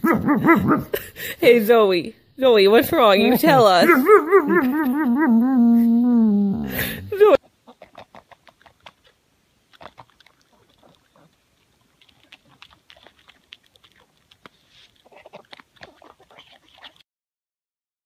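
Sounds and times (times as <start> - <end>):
dog chewing and smacking: 7.8 - 17.0.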